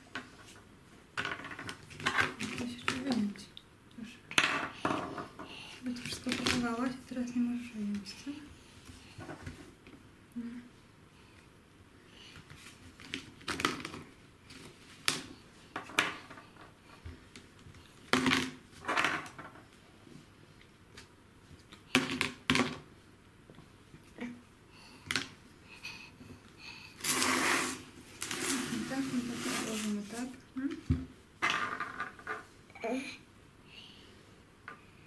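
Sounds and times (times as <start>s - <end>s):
walnuts clattering on countertop: 31.4s - 32.4s.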